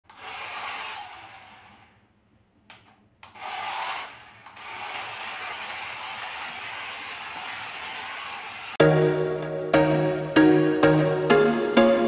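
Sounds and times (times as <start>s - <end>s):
toy car motor whirring: 0.1s - 2.1s, 3.2s - 8.8s.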